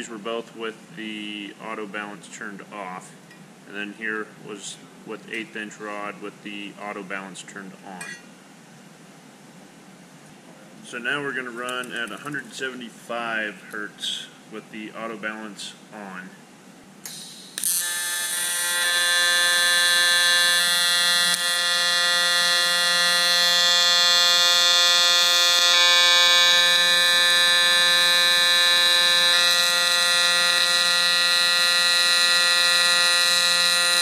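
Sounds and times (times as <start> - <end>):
welding arc buzzing: 17.0 - 34.0.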